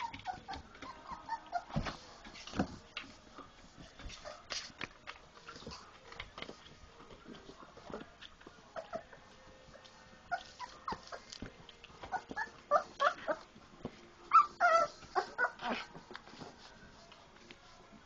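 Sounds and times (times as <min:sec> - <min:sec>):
puppies whimpering and yipping: 0:00.0 - 0:02.2, 0:08.6 - 0:13.6, 0:14.3 - 0:16.6.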